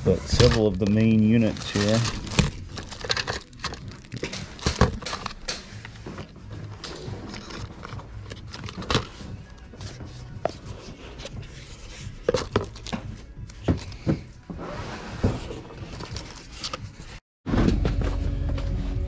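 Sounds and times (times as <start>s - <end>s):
quiet background music: 0.0s - 19.0s
small objects clattering and knocking: 0.2s - 5.9s.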